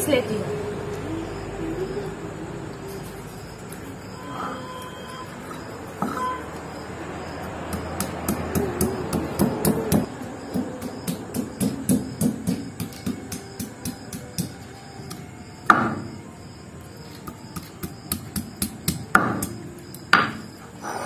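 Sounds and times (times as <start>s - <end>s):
stone pestle knocking on stone: 7.6s - 16.1s, 17.3s - 20.4s.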